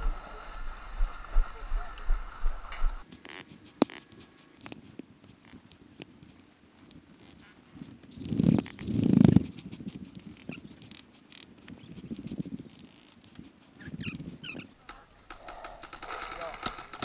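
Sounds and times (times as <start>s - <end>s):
low microphone rumbles: 0.0s - 3.0s
paintball markers popping: 3.0s - 17.0s.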